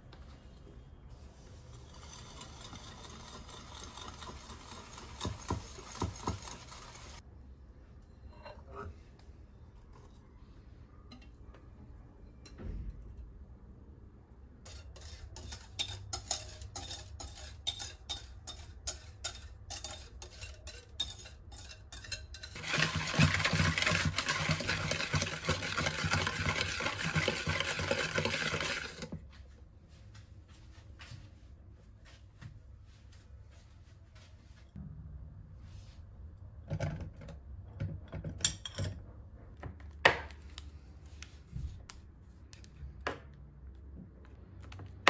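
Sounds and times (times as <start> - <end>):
utensil clinking against mixing bowl: 14.7 - 29.1.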